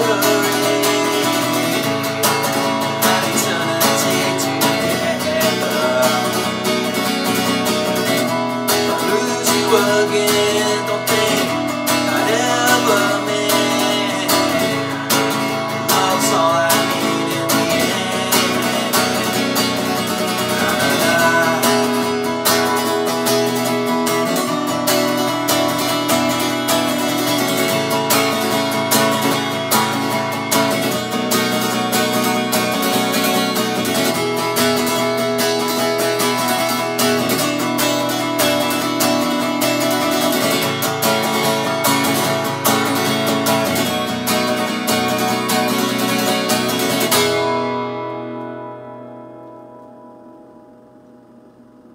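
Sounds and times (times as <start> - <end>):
man singing: 0.0 - 35.0
acoustic guitar chords: 0.0 - 51.9.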